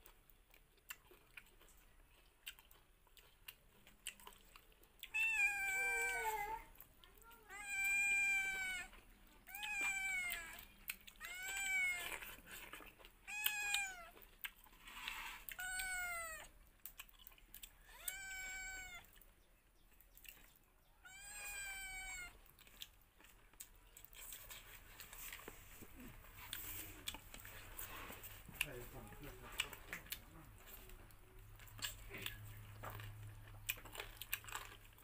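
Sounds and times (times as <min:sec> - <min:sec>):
cat meowing: 0:05.1 - 0:12.4, 0:13.2 - 0:14.2, 0:15.5 - 0:16.5, 0:17.8 - 0:19.2, 0:21.0 - 0:22.4.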